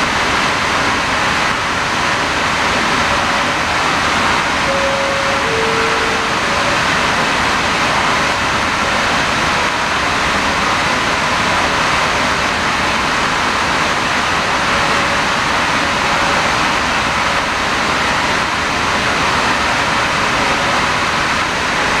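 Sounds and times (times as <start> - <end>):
industrial plant hiss: 0.0 - 22.0
faint hum: 1.5 - 10.6.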